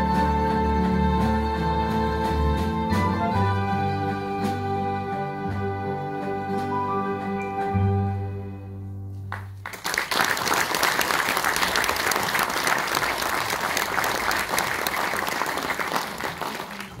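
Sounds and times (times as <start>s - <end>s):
string and piano ensemble note: 0.0s - 9.4s
audience applause: 9.3s - 17.0s.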